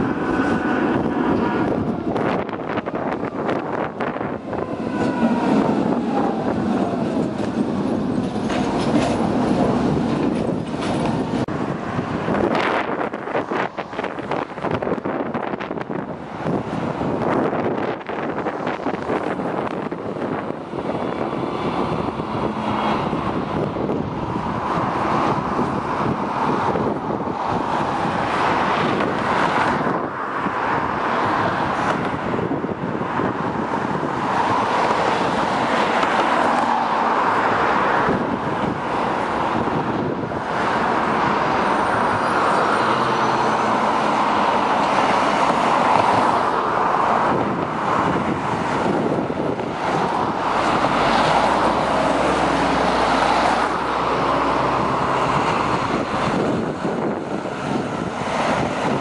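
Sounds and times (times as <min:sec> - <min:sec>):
buses and cars driving by: 0:00.0 - 0:59.0.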